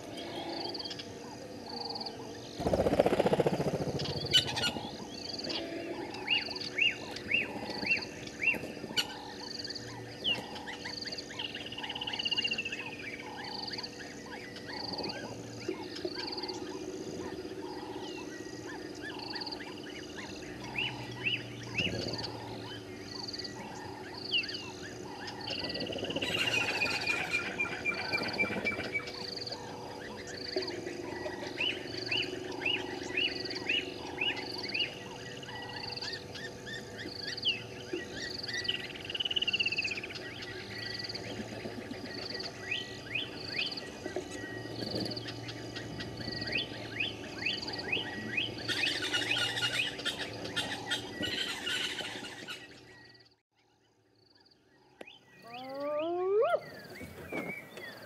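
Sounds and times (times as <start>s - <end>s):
steady low drone: 0.0s - 55.4s
birds chirping: 0.0s - 58.0s.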